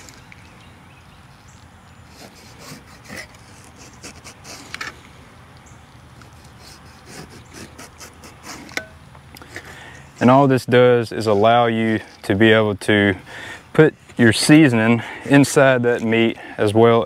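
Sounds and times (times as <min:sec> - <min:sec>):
knife scraping through fish skin: 0:02.1 - 0:04.9, 0:06.3 - 0:08.9.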